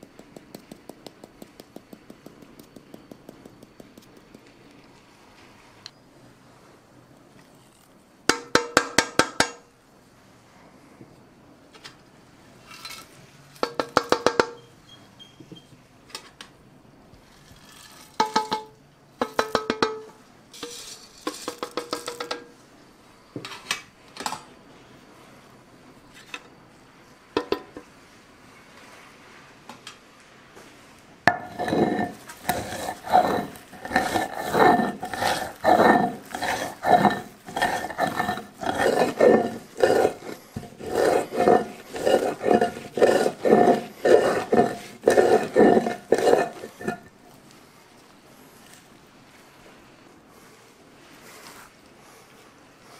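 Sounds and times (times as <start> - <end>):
metal trays tapping on stone: 0.0 - 4.5, 8.3 - 9.6, 13.6 - 14.6, 18.2 - 22.5, 31.3 - 47.1
stone roller scraping on slab: 17.2 - 18.7, 20.6 - 22.5, 31.3 - 47.2.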